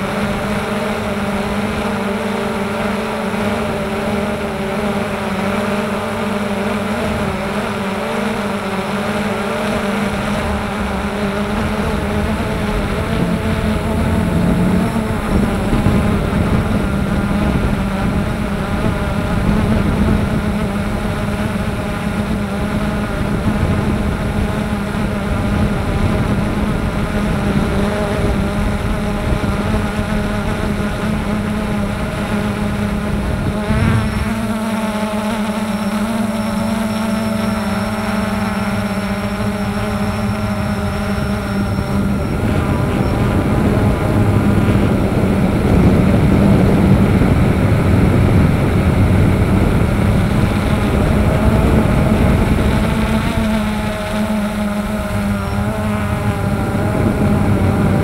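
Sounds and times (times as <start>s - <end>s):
electric motor and propeller buzzing: 0.0s - 58.0s
wind rush: 9.7s - 34.6s, 38.3s - 58.0s.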